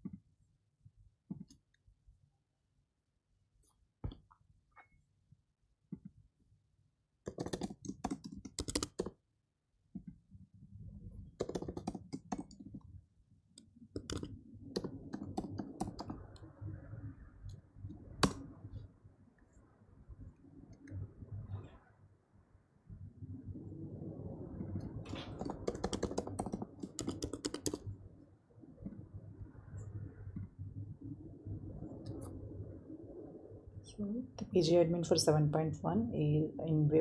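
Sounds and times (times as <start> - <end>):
faint low background noise: 0.0 - 37.0
keyboard typing clicks: 7.3 - 9.1, 11.4 - 12.7, 14.0 - 16.2, 25.1 - 27.8.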